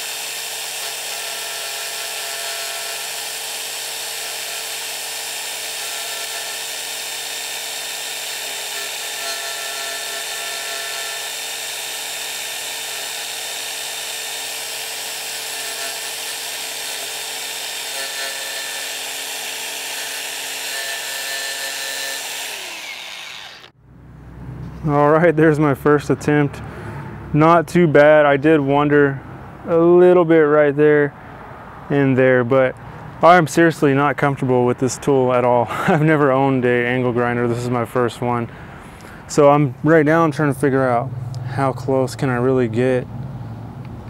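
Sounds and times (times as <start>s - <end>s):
angle grinder motor whine: 0.0s - 23.8s.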